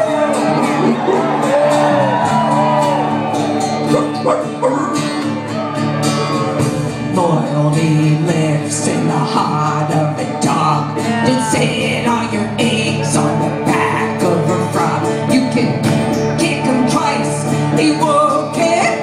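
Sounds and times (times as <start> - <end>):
bass guitar: 0.0 - 19.0
electric and acoustic guitars: 0.0 - 19.0
person singing: 6.9 - 19.0.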